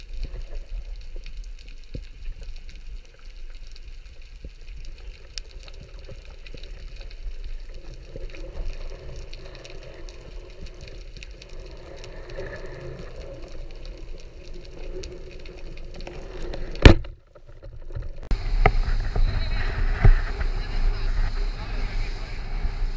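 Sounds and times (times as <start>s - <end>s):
crackle of tiny clicks underwater: 0.0s - 22.8s
low rumble of boat and wind: 17.0s - 22.9s.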